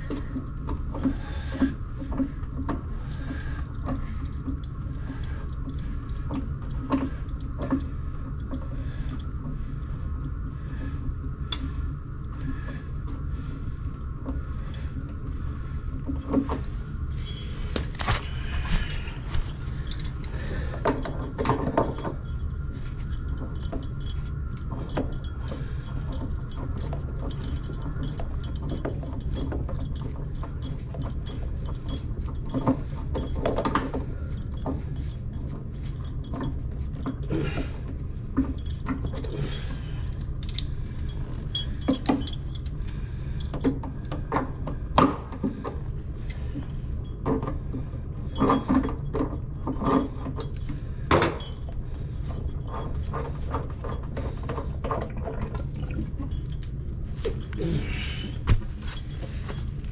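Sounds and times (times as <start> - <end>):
steady low hum: 0.0 - 59.9
metallic clinks and knocks of tools: 15.9 - 59.9.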